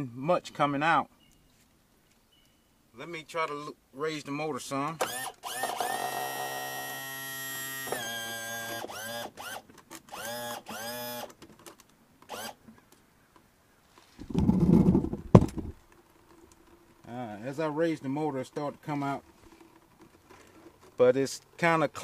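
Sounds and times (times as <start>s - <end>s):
electric tilt motor whining: 5.0s - 11.3s, 12.3s - 12.6s
rustling thump with click: 14.2s - 15.8s.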